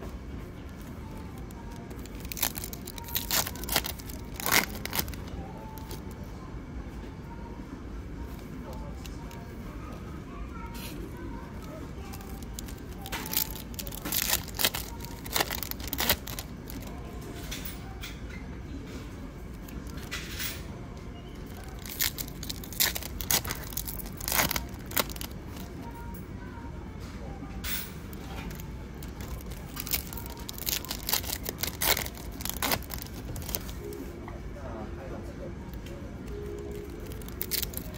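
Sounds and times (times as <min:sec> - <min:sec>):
foil pack crinkling and tearing: 0:01.4 - 0:06.1, 0:11.6 - 0:16.9, 0:21.5 - 0:25.8, 0:28.2 - 0:34.0, 0:36.7 - 0:37.9.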